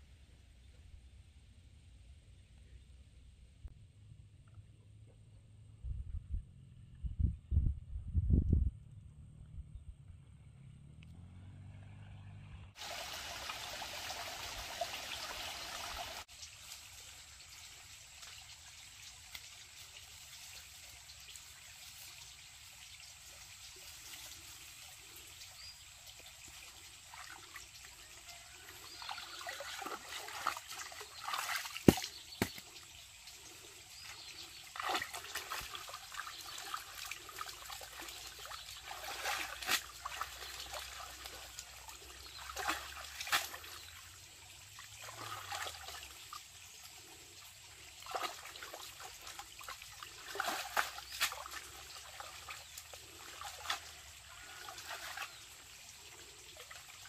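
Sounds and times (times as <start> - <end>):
trickling water: 12.8 - 57.0
sharp slap of water: 31.7 - 32.6.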